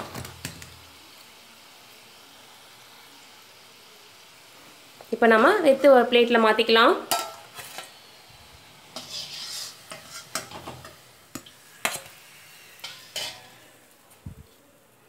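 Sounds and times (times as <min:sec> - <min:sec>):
hot oil sizzling: 0:00.0 - 0:15.0
steel spatula clinking on plate: 0:12.8 - 0:13.6.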